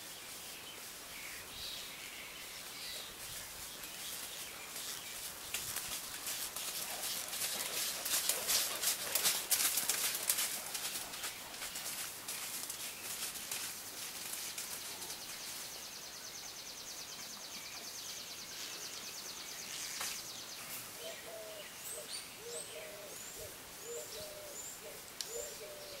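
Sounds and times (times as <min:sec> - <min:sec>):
small birds chirping: 0:00.0 - 0:26.0
dove cooing: 0:21.0 - 0:26.0.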